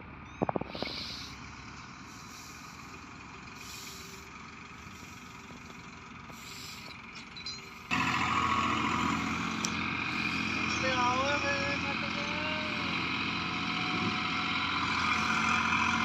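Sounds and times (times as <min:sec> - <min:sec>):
distant tractor engine: 0:00.0 - 0:16.0
loud hissing noise: 0:00.7 - 0:01.4, 0:02.1 - 0:03.0, 0:03.6 - 0:04.2.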